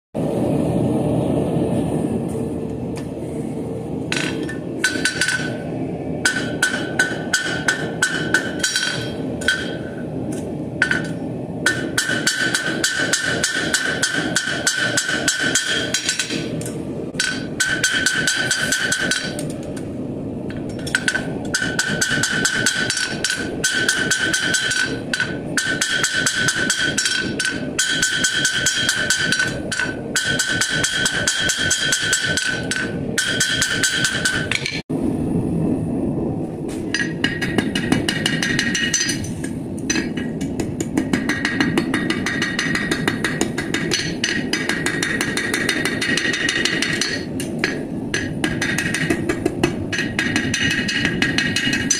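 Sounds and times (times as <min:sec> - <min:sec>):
hammer striking steel on anvil: 0:04.1 - 0:05.6, 0:06.2 - 0:19.5, 0:20.5 - 0:34.8, 0:36.9 - 0:51.9
anvil ringing: 0:06.2 - 0:10.0, 0:20.7 - 0:34.8.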